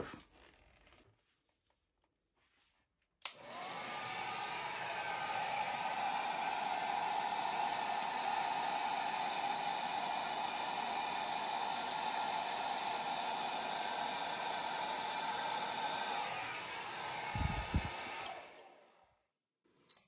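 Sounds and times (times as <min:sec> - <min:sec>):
hair dryer switch click: 0:03.2 - 0:03.7
hair dryer blowing: 0:03.2 - 0:19.2.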